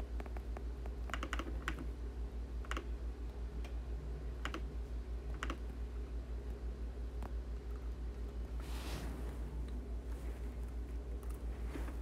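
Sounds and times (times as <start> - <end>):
steady low hum: 0.0 - 12.0
typing on a keyboard: 1.1 - 1.9, 5.3 - 5.6.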